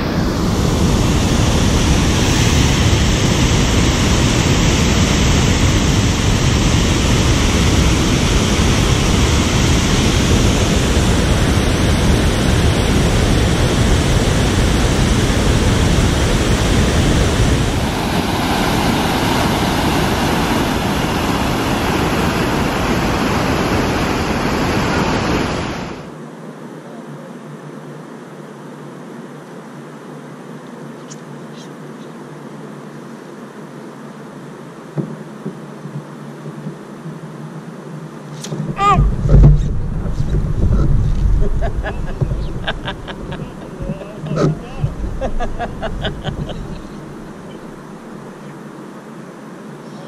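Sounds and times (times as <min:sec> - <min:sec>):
water rushing over a dam: 0:00.1 - 0:26.1.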